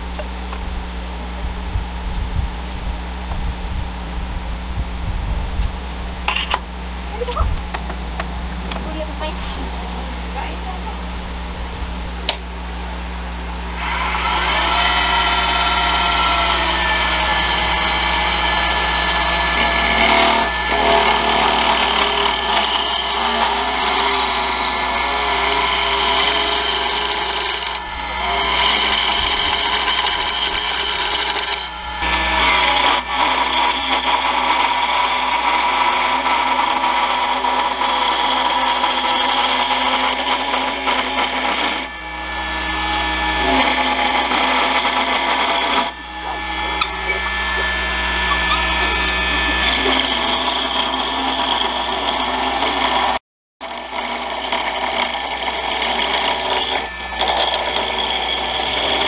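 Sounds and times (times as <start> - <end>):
wood lathe cutting: 12.2 - 59.0.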